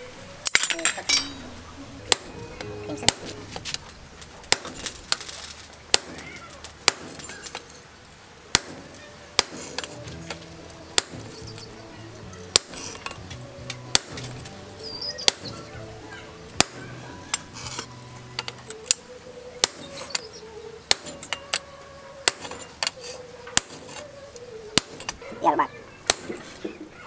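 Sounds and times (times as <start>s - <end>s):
hammer striking chisel on metal: 0.5s - 1.5s, 2.1s - 3.4s, 4.5s - 5.2s, 5.9s - 7.7s, 8.5s - 10.4s, 11.0s - 11.7s, 12.5s - 13.3s, 13.9s - 14.4s, 15.2s - 15.7s, 16.6s - 19.0s, 19.6s - 20.3s, 20.9s - 21.6s, 22.2s - 24.0s, 24.8s - 25.2s, 26.0s - 26.7s.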